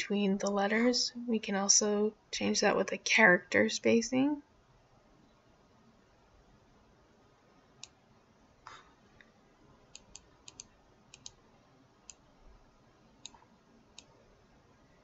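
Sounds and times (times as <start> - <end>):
computer mouse clicking: 9.9 - 11.4, 12.0 - 12.3, 13.2 - 14.1.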